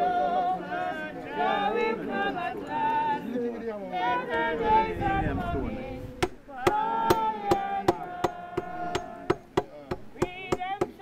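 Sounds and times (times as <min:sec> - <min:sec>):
group singing a hymn: 0:00.0 - 0:11.0
sharp knocks: 0:06.2 - 0:11.0.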